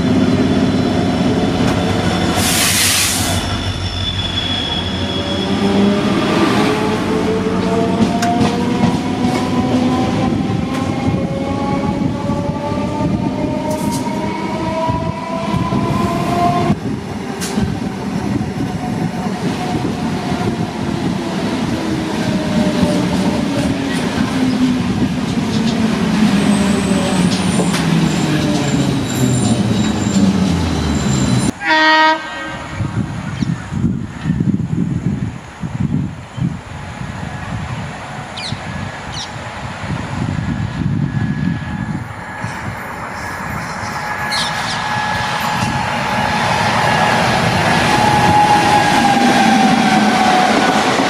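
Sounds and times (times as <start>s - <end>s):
train wheels rumbling on rails: 0.0s - 31.6s, 32.5s - 51.0s
locomotive horn blast: 31.5s - 32.8s.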